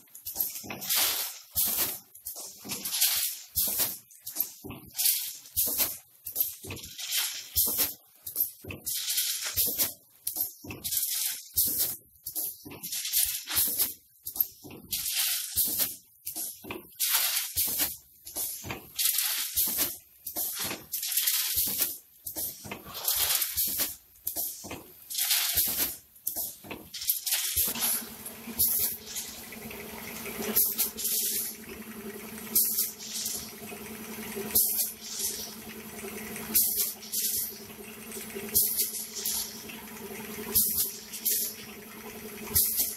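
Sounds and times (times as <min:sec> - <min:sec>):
machine rattling: 0:17.5 - 0:42.9
low machine hum: 0:27.7 - 0:42.9.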